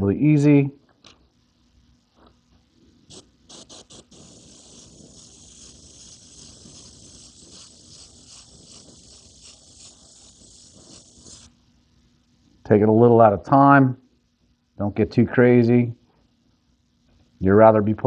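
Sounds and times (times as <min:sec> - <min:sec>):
airbrush hissing: 0:03.0 - 0:11.7
airbrush trigger blips: 0:03.1 - 0:11.5.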